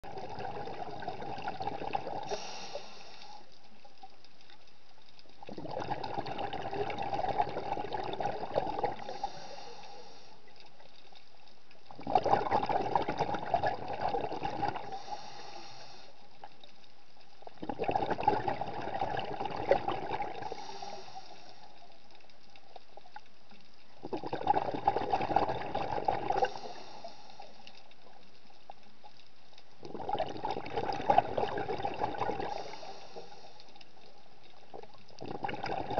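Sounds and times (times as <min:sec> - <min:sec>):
underwater exhalation bubbling: 0:00.0 - 0:03.3, 0:05.4 - 0:10.0, 0:11.9 - 0:15.6, 0:17.5 - 0:21.5, 0:24.0 - 0:27.2, 0:29.8 - 0:33.4, 0:34.7 - 0:35.9
regulator hiss: 0:02.2 - 0:03.6, 0:09.0 - 0:10.5, 0:14.9 - 0:16.4, 0:20.4 - 0:22.0, 0:32.5 - 0:33.8.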